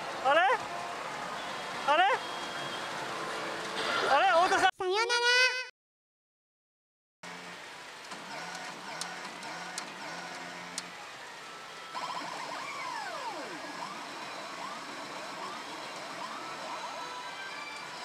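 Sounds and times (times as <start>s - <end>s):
pachinko machine electronic effects: 11.8s - 18.0s
pachinko parlor din: 11.9s - 18.0s
swooping siren-like tones: 11.9s - 18.0s.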